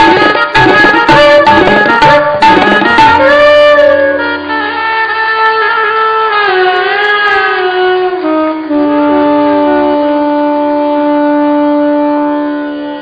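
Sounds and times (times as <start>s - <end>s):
saxophones playing melody: 0.0s - 5.3s, 8.2s - 13.0s.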